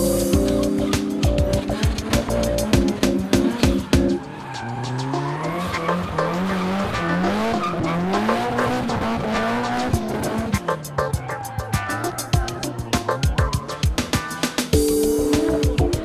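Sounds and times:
car engine revving: 0.2s - 16.0s
tyres squealing: 1.6s - 10.1s.

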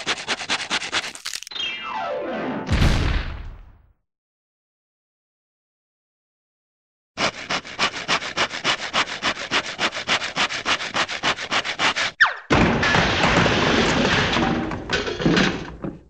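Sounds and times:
fast handsaw strokes: 0.0s - 1.5s, 7.2s - 12.2s
loud crash of tumbling debris: 12.5s - 16.0s.

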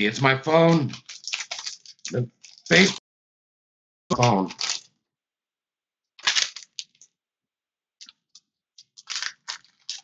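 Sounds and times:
foil pack crinkling: 0.6s - 2.9s, 4.2s - 4.9s, 6.2s - 7.0s, 8.8s - 10.0s.

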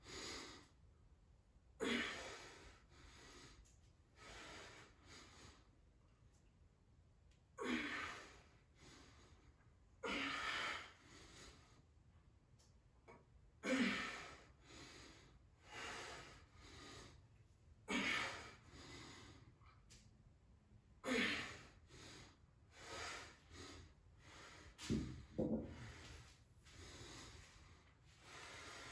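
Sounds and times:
man breathing hard: 0.0s - 0.8s, 1.8s - 5.7s, 7.6s - 11.9s, 13.6s - 19.8s, 21.0s - 28.9s
kettlebell thud on mat: 24.8s - 25.8s.

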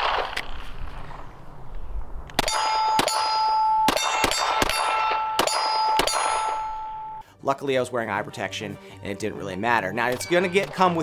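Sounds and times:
pistol shots: 2.4s - 6.8s
steel target ringing: 2.4s - 7.2s, 10.1s - 11.0s.

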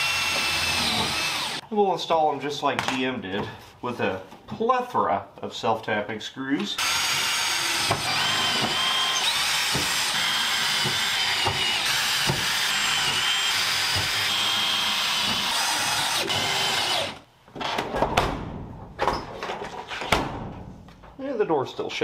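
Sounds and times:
cordless drill whining: 0.0s - 1.6s, 6.8s - 17.2s.

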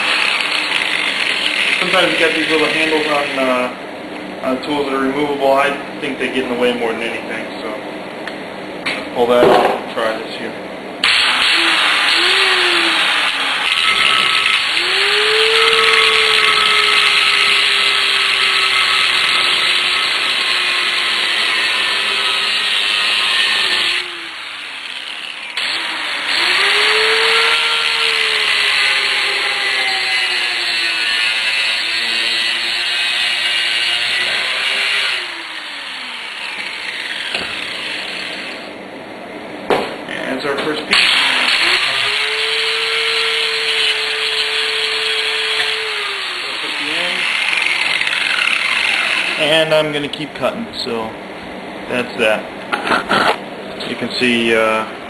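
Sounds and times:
angle grinder cutting metal: 0.0s - 3.5s, 11.0s - 38.7s, 40.9s - 49.8s.

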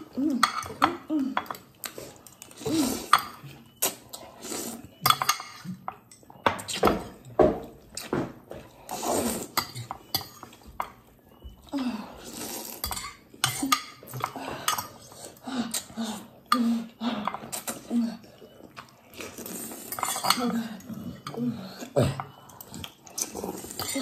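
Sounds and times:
fork scraping glass containers: 0.3s - 7.1s, 8.8s - 11.0s, 12.3s - 15.2s, 19.2s - 21.4s
noodles slurped: 8.8s - 9.9s, 12.2s - 12.8s, 17.4s - 21.2s, 21.8s - 24.0s.

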